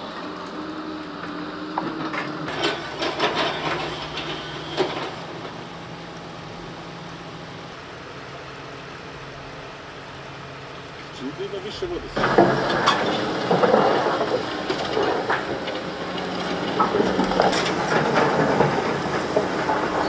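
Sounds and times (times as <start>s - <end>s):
heavy machinery engine hum: 0.0s - 20.0s
wood and rubble clattering: 1.8s - 6.0s, 12.1s - 20.0s.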